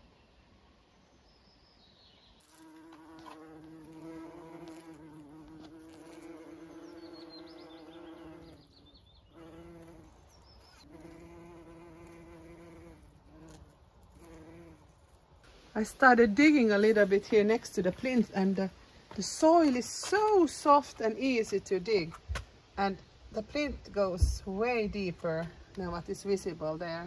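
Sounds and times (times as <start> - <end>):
bird chirping: 0.0 - 2.8, 6.3 - 11.2
insect buzzing: 2.4 - 15.5.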